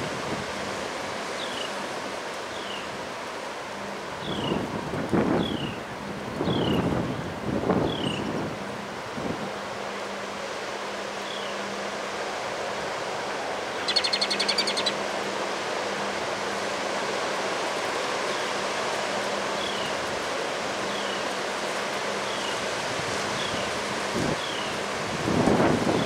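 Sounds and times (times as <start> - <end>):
wind rushing through trees: 0.0 - 26.0
bird trilling: 13.7 - 15.0.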